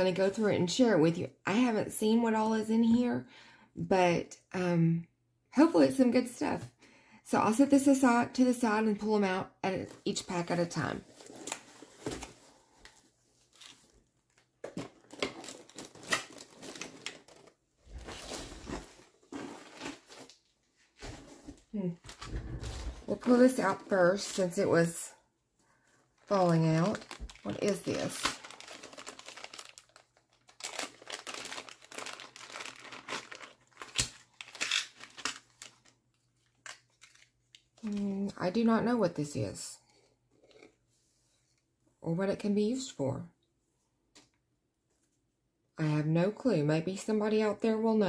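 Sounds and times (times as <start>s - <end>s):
plastic bag crinkling: 11.0s - 20.5s, 26.2s - 38.0s.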